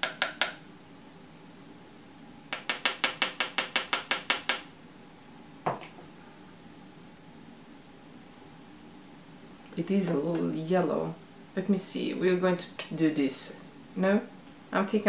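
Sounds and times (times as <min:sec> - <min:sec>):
powder jar tapping: 0:02.5 - 0:04.7.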